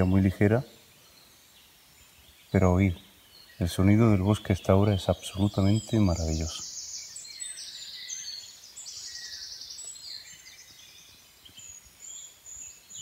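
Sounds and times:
songbirds singing: 0:00.0 - 0:13.0.

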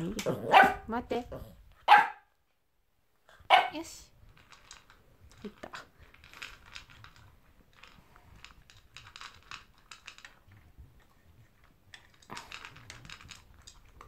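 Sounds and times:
dog crunching food: 0:04.3 - 0:14.0
plastic bowl clattering: 0:11.9 - 0:14.0.

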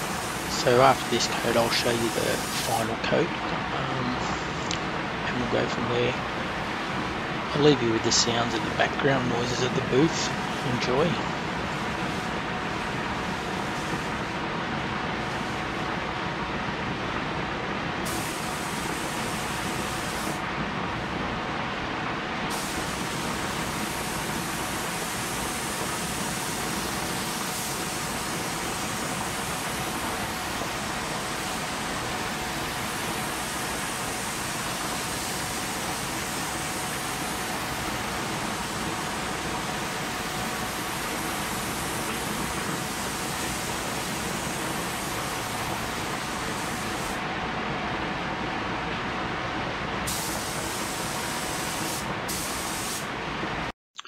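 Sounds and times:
spray gun hissing: 0:00.0 - 0:03.0, 0:18.0 - 0:20.4, 0:22.5 - 0:47.2, 0:50.1 - 0:53.1
blower rushing air: 0:00.0 - 0:47.4.

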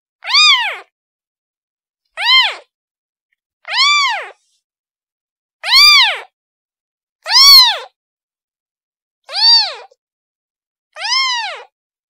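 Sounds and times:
kitten meowing: 0:00.2 - 0:00.9, 0:02.2 - 0:02.7, 0:03.7 - 0:04.4, 0:05.6 - 0:06.3, 0:07.3 - 0:08.0, 0:09.3 - 0:10.0, 0:11.0 - 0:11.7.

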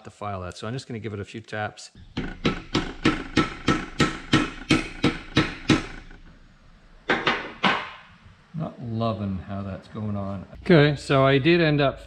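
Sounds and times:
hammer tapping on metal: 0:02.1 - 0:06.2, 0:07.1 - 0:08.1.

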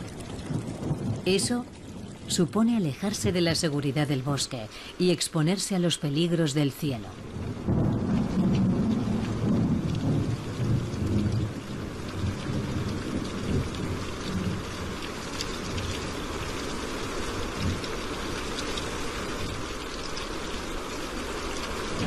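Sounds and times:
rolling thunder: 0:00.0 - 0:02.4, 0:07.2 - 0:15.0
steady rain: 0:00.0 - 0:22.0.

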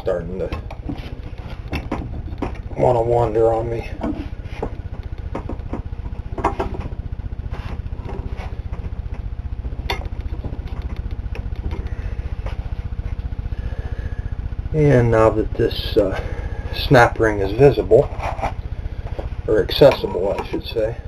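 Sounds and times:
low fast-pulsing rumble: 0:00.0 - 0:21.0.

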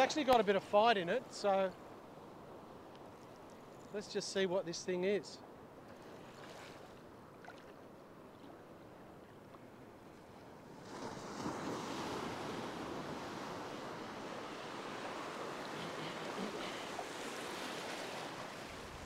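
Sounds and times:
surf washing in shallows: 0:09.9 - 0:19.0.

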